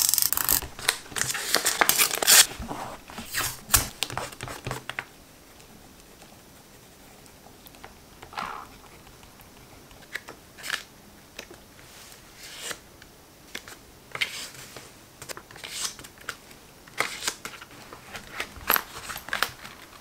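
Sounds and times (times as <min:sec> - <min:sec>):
paper pages turning: 0:00.0 - 0:05.1.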